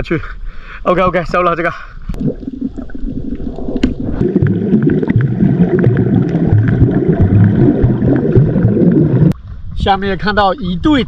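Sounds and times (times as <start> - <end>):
underwater gurgling rumble: 2.1 - 9.8.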